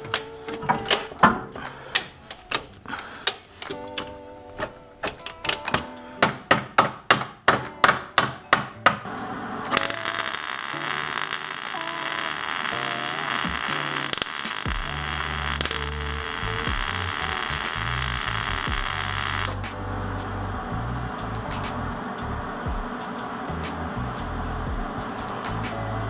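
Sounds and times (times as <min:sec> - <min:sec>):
arc welder hissing and crackling: 0:09.7 - 0:19.6.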